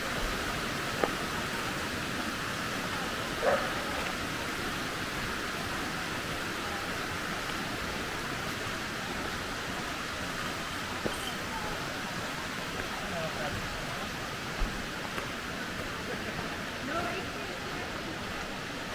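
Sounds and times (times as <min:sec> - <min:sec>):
waterfall rushing: 0:00.0 - 0:18.9
dog barking: 0:03.4 - 0:03.8.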